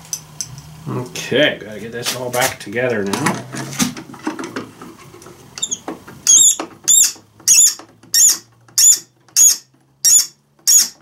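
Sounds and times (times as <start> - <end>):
high-pitched rhythmic squeaks: 5.6 - 11.0.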